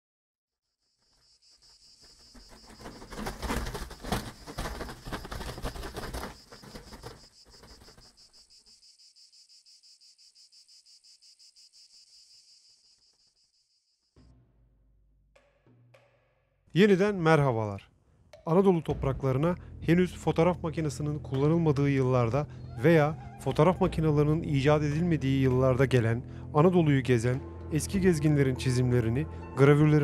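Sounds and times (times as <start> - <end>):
crickets chirping: 0.8 - 14.2
paper sheets fluttering: 1.0 - 8.5.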